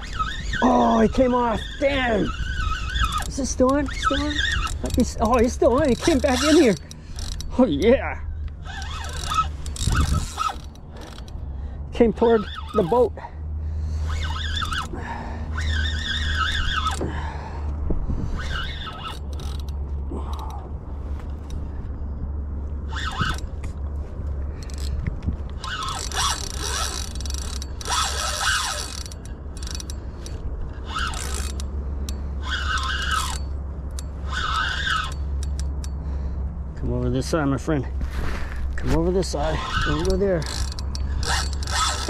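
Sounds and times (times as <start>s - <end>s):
fishing reel whirring and clicking: 0.0s - 11.5s, 12.1s - 13.2s, 13.9s - 17.3s, 18.3s - 20.7s, 22.8s - 23.8s, 24.5s - 36.2s, 39.4s - 42.0s.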